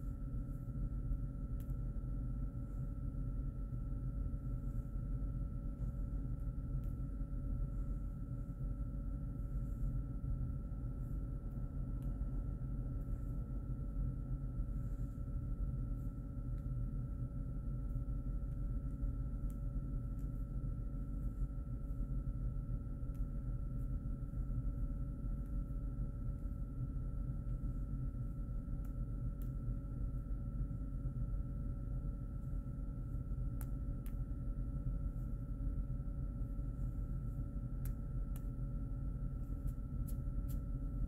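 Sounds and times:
low room hum: 0.0s - 41.0s.

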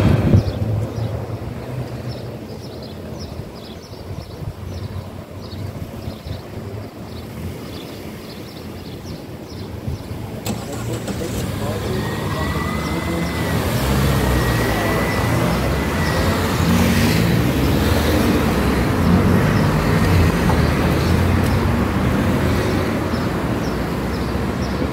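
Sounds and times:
cars accelerating past: 10.4s - 24.9s.

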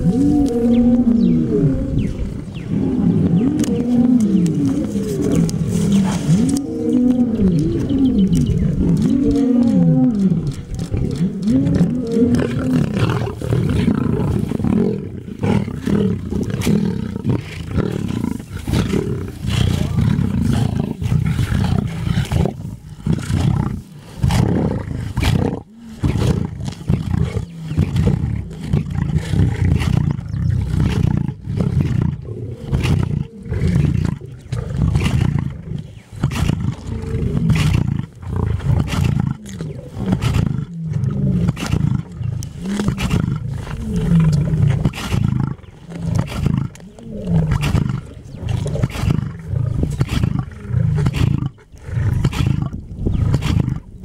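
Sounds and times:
lions growling: 0.0s - 54.0s
tearing and chewing cracks: 3.6s - 14.0s, 32.8s - 53.6s.

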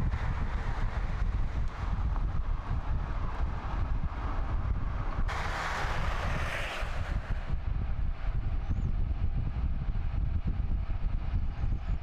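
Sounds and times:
hiss of tyre and road noise: 0.0s - 8.4s
car road noise: 0.0s - 12.0s
wind rumbling on microphone: 0.0s - 12.0s.

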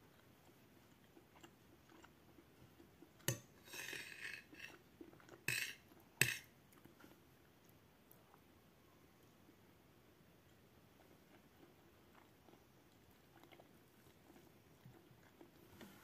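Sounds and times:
cutlery scraping plate: 3.3s - 6.5s
cutlery clinking against plate: 5.4s - 6.5s.

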